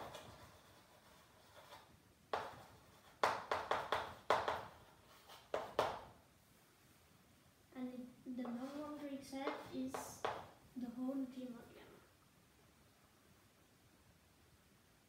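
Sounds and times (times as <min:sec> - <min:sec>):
chalk tapping on blackboard: 0:00.0 - 0:06.2, 0:08.4 - 0:10.6.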